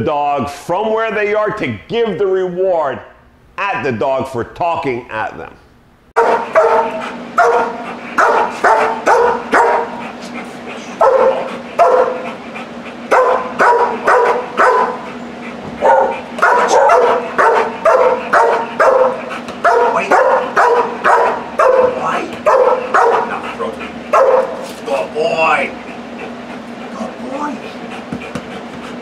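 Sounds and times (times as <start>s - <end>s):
dog barking: 6.2s - 10.0s, 11.0s - 12.3s, 13.1s - 15.1s, 15.8s - 23.4s, 24.1s - 24.6s.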